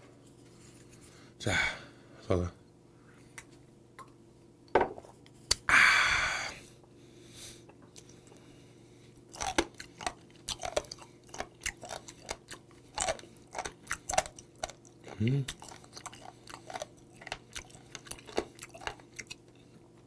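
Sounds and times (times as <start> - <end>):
breathy exhale: 5.7 - 7.6
wet chewing: 9.2 - 19.8.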